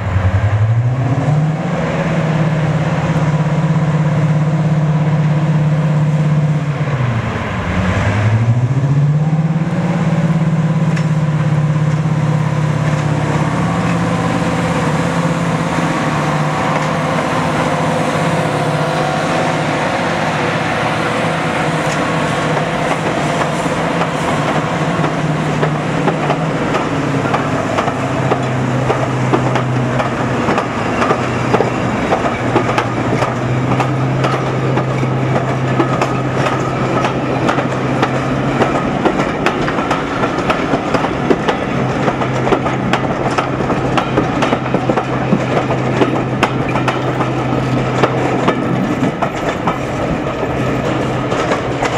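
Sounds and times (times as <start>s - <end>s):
diesel locomotive engine drone: 0.0s - 51.9s
train wheels clicking over rail joints: 10.8s - 51.9s.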